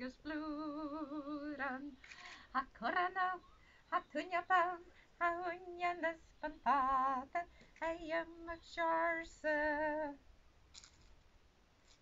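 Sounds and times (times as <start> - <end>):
woman singing unaccompanied: 0.0 - 10.3.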